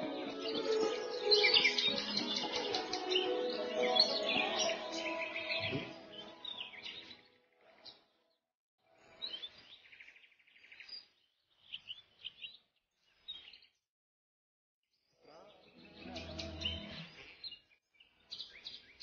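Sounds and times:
young cuckoo begging calls: 0.0s - 6.7s.

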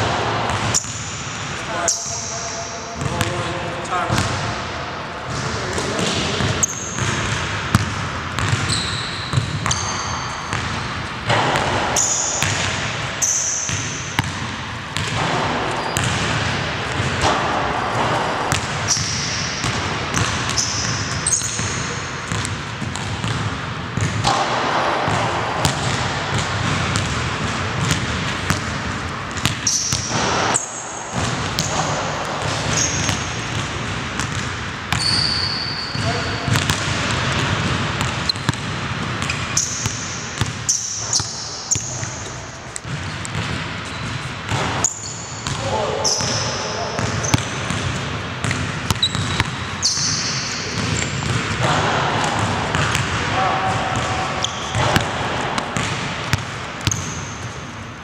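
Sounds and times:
sneaker squeaks: 0.6s - 1.2s, 1.8s - 3.2s, 5.3s - 14.4s, 15.0s - 23.4s, 29.3s - 36.8s, 38.0s - 51.7s, 53.6s - 57.7s
basketball bouncing on wooden floor: 5.3s - 35.2s, 36.0s - 46.4s, 47.0s - 57.2s.

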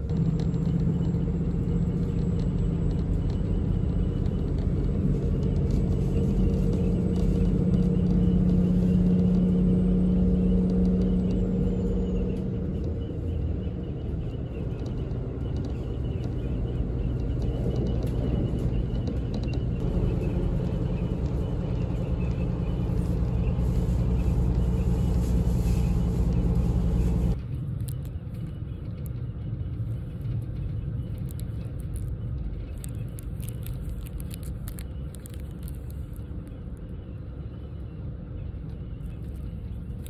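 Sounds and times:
train running rumble: 0.0s - 40.0s
plastic wrapper crinkling: 31.2s - 36.5s.

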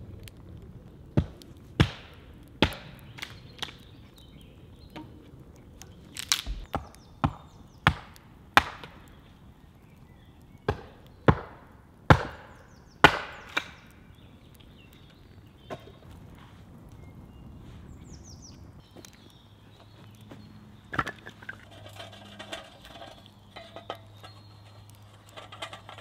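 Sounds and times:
hatchet chopping wood: 1.2s - 3.7s, 6.2s - 9.0s, 10.6s - 13.8s.

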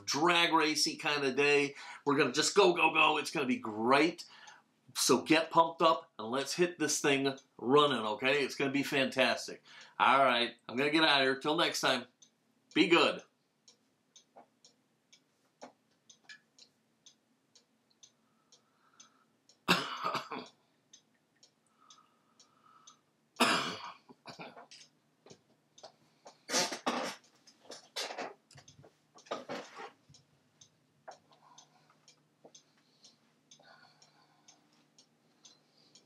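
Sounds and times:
light steady ticking: 0.0s - 36.0s
person coughing: 19.7s - 20.5s, 23.4s - 24.7s, 26.5s - 27.2s.

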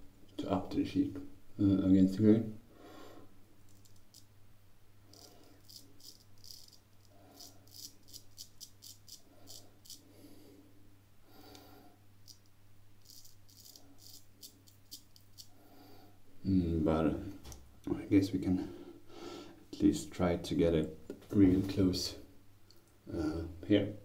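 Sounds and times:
razor scraping stubble: 5.1s - 10.0s, 12.2s - 15.6s.

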